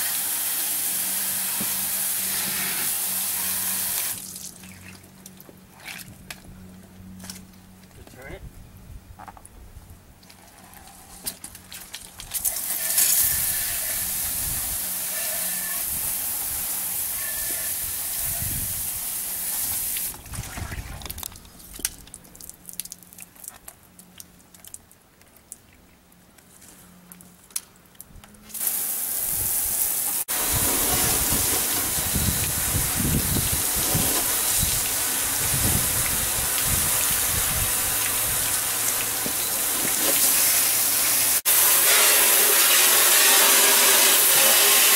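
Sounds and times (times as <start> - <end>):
water jets spraying vehicle: 0.0 - 6.1, 11.0 - 20.3, 28.5 - 44.9.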